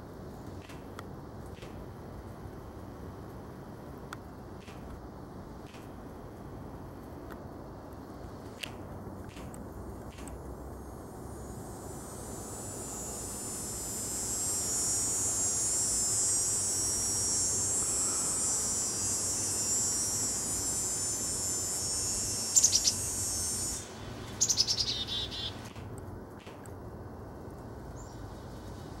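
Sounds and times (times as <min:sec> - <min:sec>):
high insect buzz: 0:00.0 - 0:29.0
small bird chirping: 0:22.4 - 0:25.7, 0:27.9 - 0:29.0.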